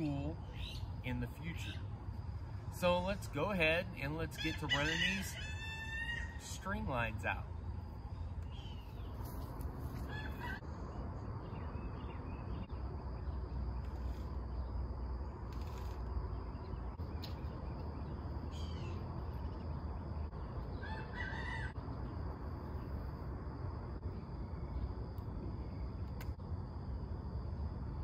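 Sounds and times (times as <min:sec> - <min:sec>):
steady low rumble: 0:00.0 - 0:04.3, 0:06.3 - 0:28.0
chickens calling: 0:04.4 - 0:06.4, 0:20.7 - 0:21.8
rooster crowing: 0:04.5 - 0:06.4, 0:10.0 - 0:10.7, 0:20.8 - 0:21.8.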